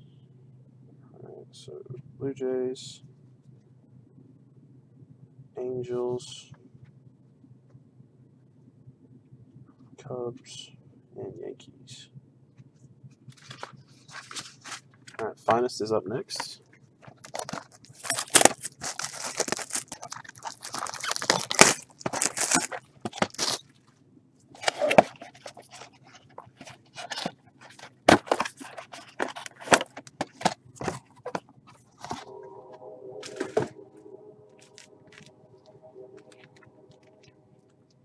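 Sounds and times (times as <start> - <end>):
steady low hum: 0.0 - 38.0
plastic wrapping crackling: 17.1 - 23.6.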